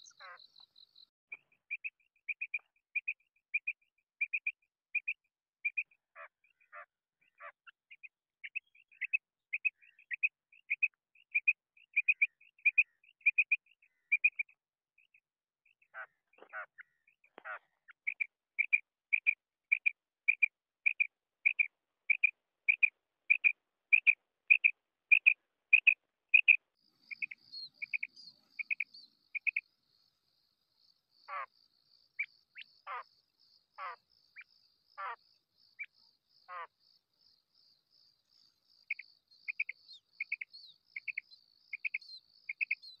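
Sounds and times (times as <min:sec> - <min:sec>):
quail calling: 0:00.0 - 0:00.6, 0:15.9 - 0:29.6, 0:31.3 - 0:31.5, 0:32.2 - 0:33.1, 0:33.8 - 0:35.2, 0:35.8 - 0:36.8, 0:38.9 - 0:43.0.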